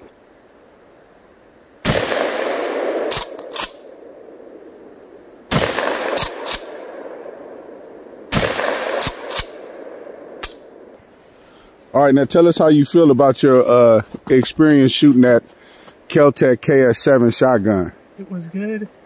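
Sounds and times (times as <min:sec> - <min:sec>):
shotgun blasts echoing: 0:01.8 - 0:04.1, 0:05.5 - 0:07.4, 0:08.3 - 0:10.7.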